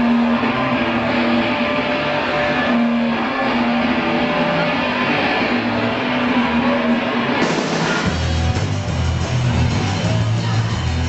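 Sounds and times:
distorted electric guitars: 0:00.0 - 0:11.0
live rock band playing: 0:03.8 - 0:11.0.

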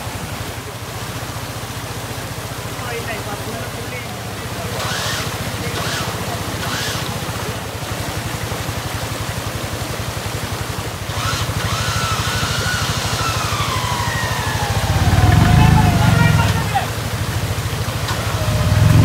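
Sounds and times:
vehicle engine idling: 0:00.0 - 0:19.0
thin high tone falling in pitch: 0:13.2 - 0:16.7.

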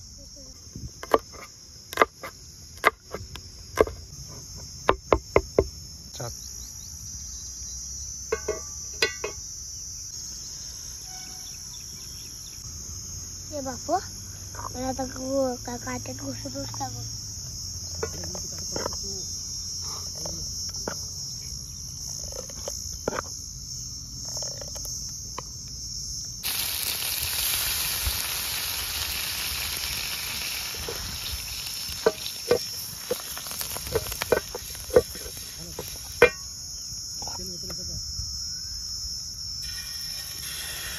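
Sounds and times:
crickets chirping: 0:00.0 - 0:40.9
steady hiss: 0:26.4 - 0:36.6, 0:39.6 - 0:40.9.

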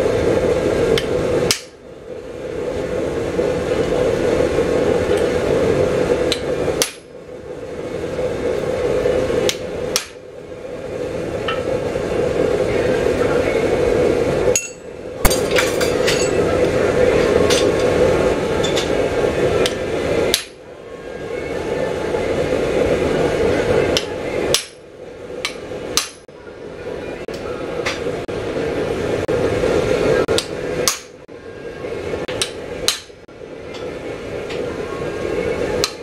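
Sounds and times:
steady hum: 0:00.0 - 0:36.0
hammer striking steel on anvil: 0:06.3 - 0:07.1, 0:09.5 - 0:10.2, 0:14.5 - 0:16.4, 0:24.0 - 0:24.8, 0:25.4 - 0:26.2, 0:30.3 - 0:31.2, 0:32.3 - 0:33.9, 0:35.8 - 0:36.0.

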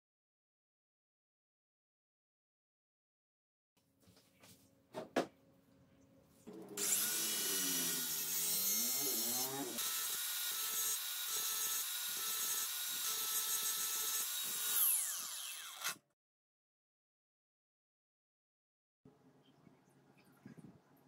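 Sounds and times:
angle grinder whining: 0:06.6 - 0:16.0.

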